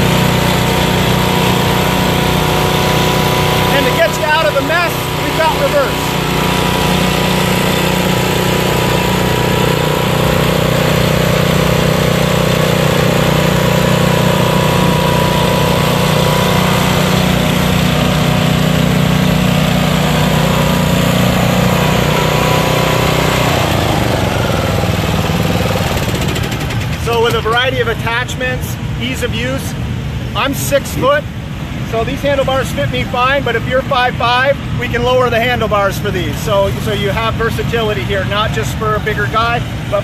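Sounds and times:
mower engine running: 0:00.0 - 0:29.0, 0:31.0 - 0:40.0.

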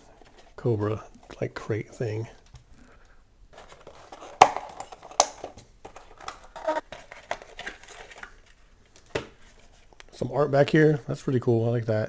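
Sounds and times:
cardboard crinkling and rustle: 0:03.5 - 0:08.6.

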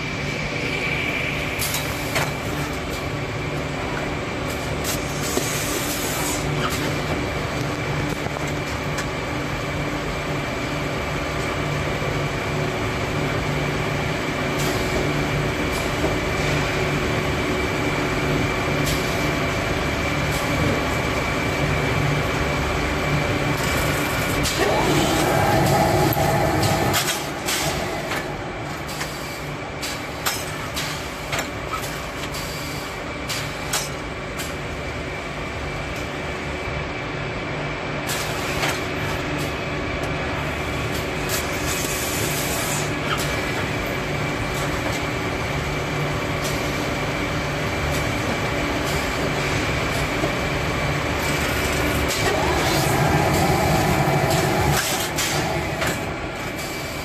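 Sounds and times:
bag-closing machine humming: 0:13.1 - 0:32.4, 0:40.4 - 0:57.0.

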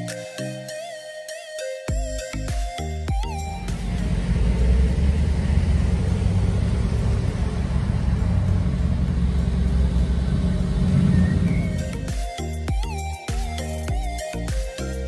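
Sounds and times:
deep car exhaust note: 0:03.6 - 0:12.1.

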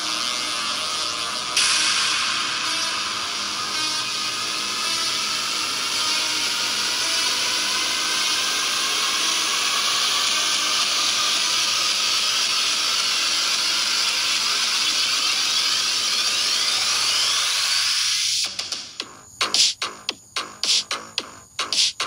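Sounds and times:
hissing synthesizer noise sweep: 0:00.0 - 0:22.0
rising and falling synth glides: 0:01.1 - 0:11.7.

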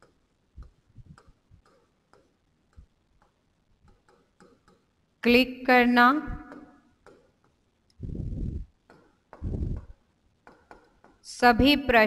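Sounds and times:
pen tapping on whiteboard screen: 0:00.0 - 0:05.0, 0:06.4 - 0:07.6, 0:08.8 - 0:11.8.

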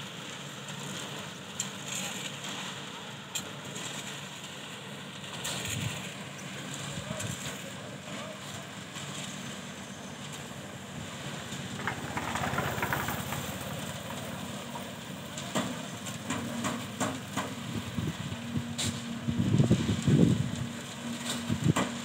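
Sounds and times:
machinery engine rumble: 0:00.0 - 0:22.0
knocks and clatter: 0:11.5 - 0:14.8.

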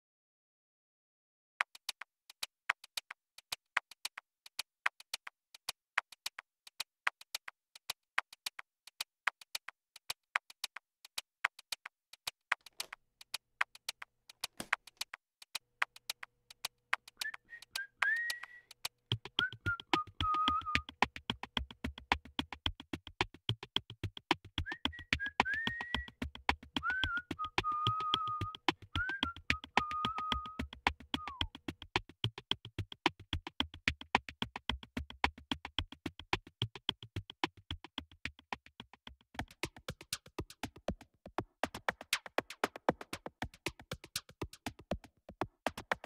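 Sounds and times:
ticking drum machine beat: 0:18.6 - 0:46.0.

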